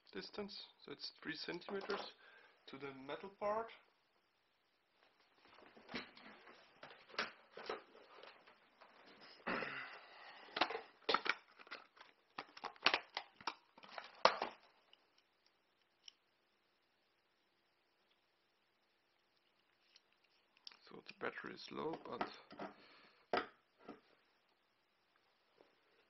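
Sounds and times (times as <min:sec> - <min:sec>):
rustling and scraping: 0:05.0 - 0:09.4.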